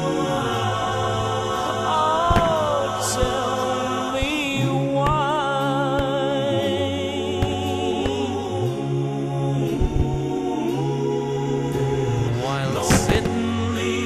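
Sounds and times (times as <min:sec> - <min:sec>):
bass line: 0:00.0 - 0:14.0
slow song wavering tones: 0:00.0 - 0:14.0
sharp thuds: 0:02.3 - 0:03.5, 0:12.9 - 0:13.4.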